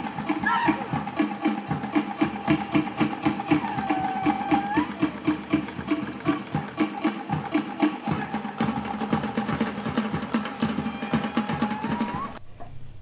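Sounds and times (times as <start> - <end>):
fast drumming: 0.0 - 12.4
held high note rising: 2.0 - 5.6.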